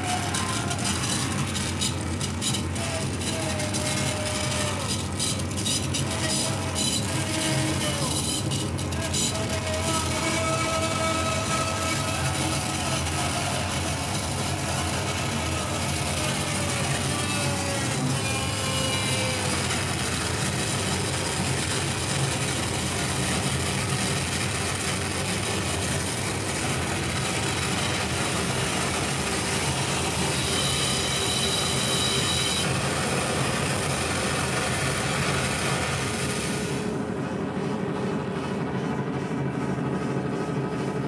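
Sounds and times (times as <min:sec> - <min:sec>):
harsh noise music: 0:00.0 - 0:31.1
piercing high whine: 0:00.0 - 0:41.0.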